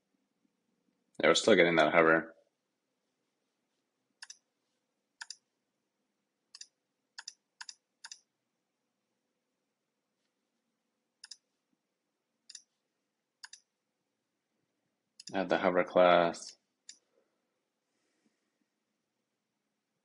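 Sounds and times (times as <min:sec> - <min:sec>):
computer mouse clicks: 0:04.2 - 0:04.4, 0:05.2 - 0:05.4, 0:06.5 - 0:08.3, 0:11.2 - 0:11.4, 0:12.5 - 0:12.7, 0:13.4 - 0:13.7.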